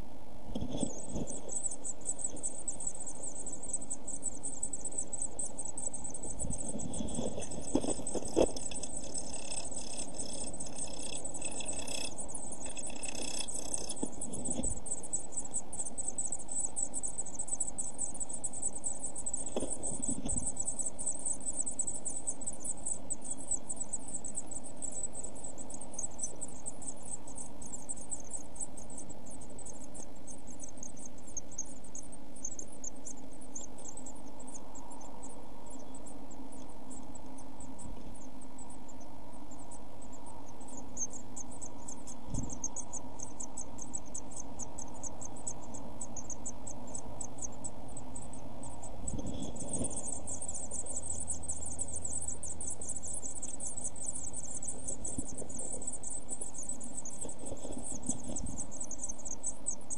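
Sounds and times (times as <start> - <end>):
steady low hum: 0.0 - 59.9
chicks begging calls: 4.6 - 16.6.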